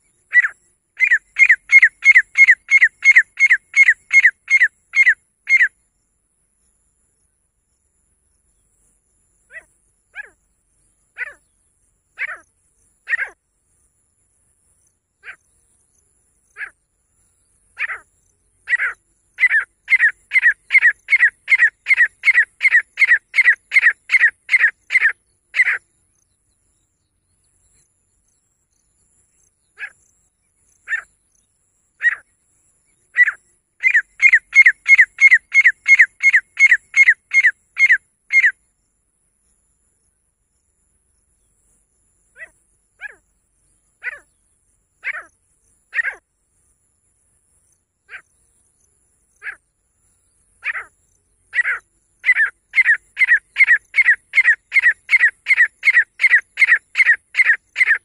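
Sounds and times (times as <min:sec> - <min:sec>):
bird calling high notes: 0:33.2 - 0:38.5.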